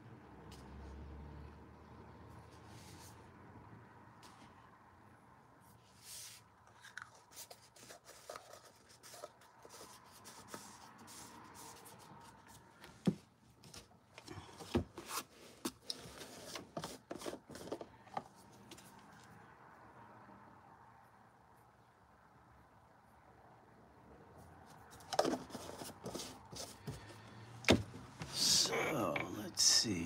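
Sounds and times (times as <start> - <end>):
paintbrush scraping and dabbing: 5.6 - 12.7, 28.3 - 30.0.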